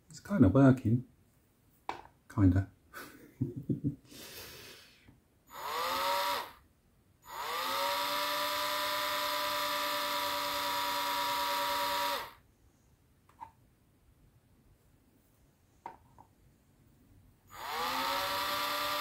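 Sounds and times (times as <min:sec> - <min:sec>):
rotary tool spinning: 0:05.5 - 0:06.6, 0:07.3 - 0:12.4, 0:17.6 - 0:19.0.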